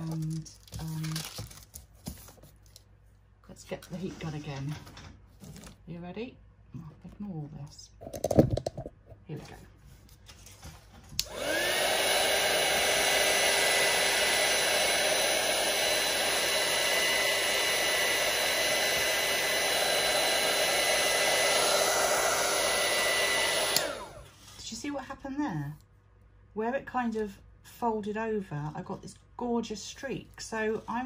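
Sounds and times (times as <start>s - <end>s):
heat gun fan humming: 11.2s - 24.4s.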